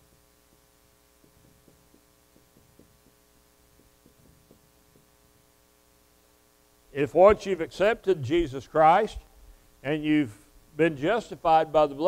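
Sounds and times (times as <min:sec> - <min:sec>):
steady electrical hum: 0:00.0 - 0:12.0
marker writing on whiteboard: 0:01.2 - 0:05.2.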